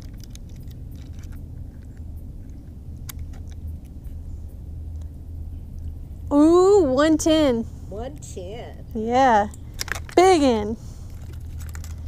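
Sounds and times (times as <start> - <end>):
fish scale clicks and rattles: 0.0 - 2.0, 9.8 - 10.2, 11.1 - 12.0
steady low rumble: 0.0 - 12.0.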